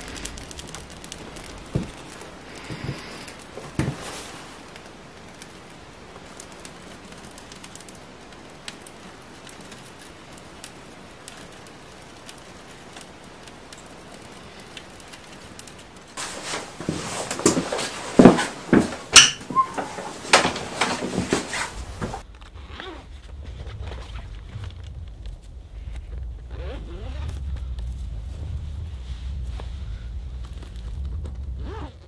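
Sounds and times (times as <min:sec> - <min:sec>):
wood fire crackling: 0:00.0 - 0:32.0.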